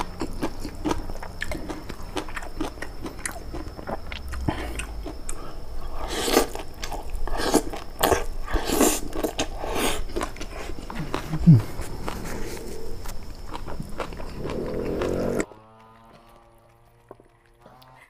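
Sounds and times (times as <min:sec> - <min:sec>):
person chewing and crunching: 0:00.0 - 0:18.0
wet mouth clicks: 0:01.4 - 0:05.5, 0:08.8 - 0:18.0.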